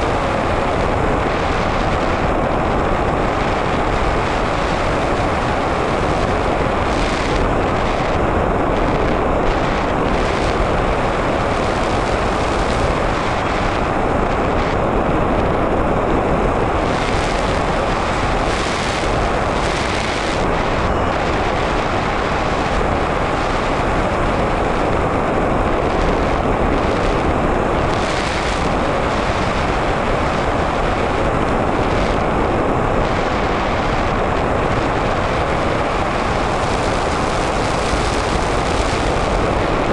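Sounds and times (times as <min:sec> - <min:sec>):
rushing airflow: 0:00.0 - 0:39.9.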